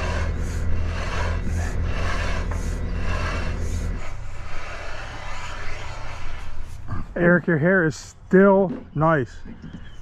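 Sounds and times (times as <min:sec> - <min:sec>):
low engine hum: 0:00.0 - 0:07.4
tool scraping wet concrete: 0:00.0 - 0:07.7.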